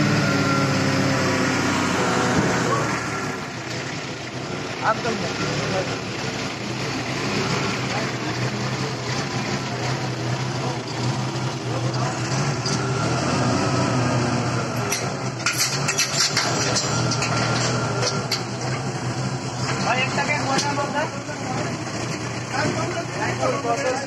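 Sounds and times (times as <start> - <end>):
forklift engine running: 0.0 - 24.0
metal drums knocking and clanking: 14.9 - 18.9.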